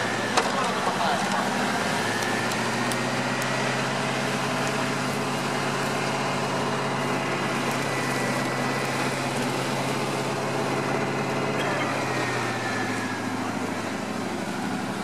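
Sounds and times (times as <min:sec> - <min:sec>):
suv engine running: 0:00.0 - 0:15.0.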